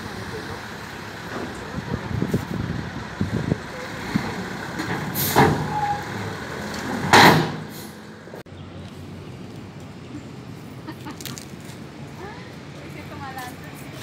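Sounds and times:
truck engine running low: 0:00.0 - 0:08.4
air brakes hissing: 0:05.0 - 0:06.1, 0:07.3 - 0:08.1.

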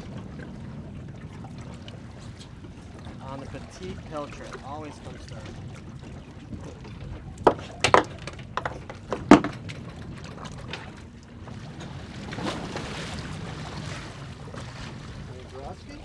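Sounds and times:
boat hum: 0:00.0 - 0:16.0.

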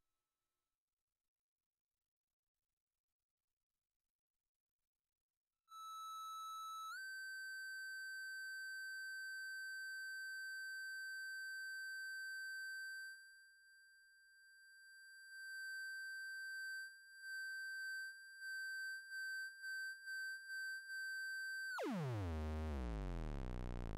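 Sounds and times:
synth high-pitched tone: 0:21.8 - 0:23.9.

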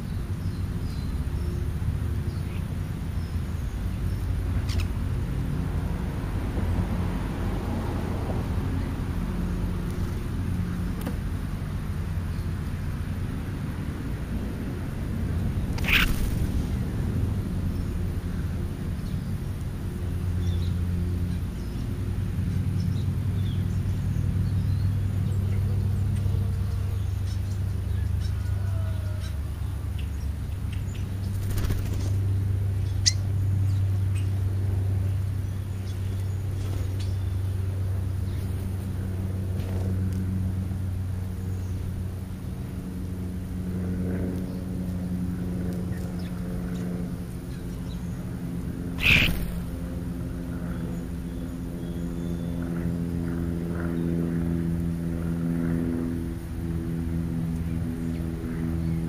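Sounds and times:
low mechanical hum: 0:00.0 - 0:59.0
bird chirps: 0:15.8 - 0:16.2, 0:32.8 - 0:34.3, 0:49.0 - 0:49.7.

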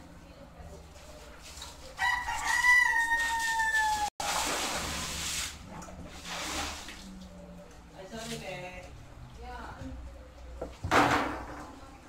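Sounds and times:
rooster crowing: 0:02.0 - 0:04.1.

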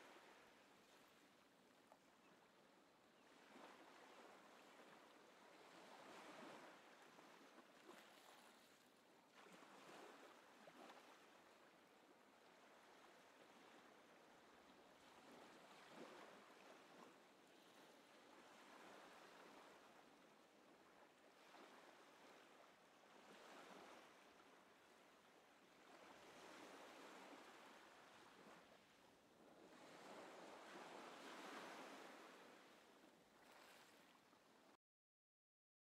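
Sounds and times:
faint rushing water: 0:00.0 - 0:17.0, 0:29.7 - 0:34.8.

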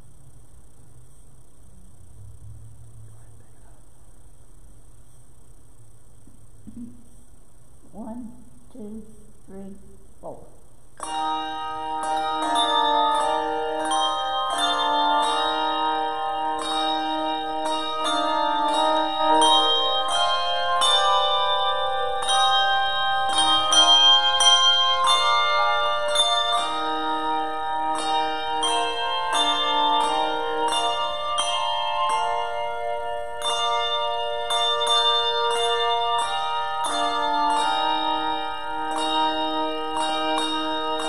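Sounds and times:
handbell choir playing: 0:11.0 - 0:41.0.

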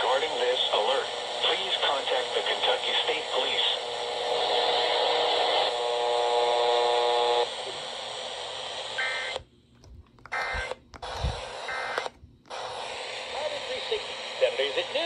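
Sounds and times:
radio hiss and static: 0:00.0 - 0:09.4, 0:10.3 - 0:15.0
steady buzzing tone: 0:03.5 - 0:09.4, 0:10.3 - 0:15.0.

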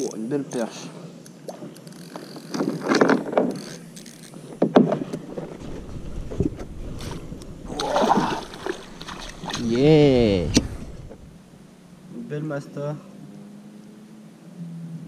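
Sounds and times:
fish splashing at surface: 0:05.2 - 0:11.4.

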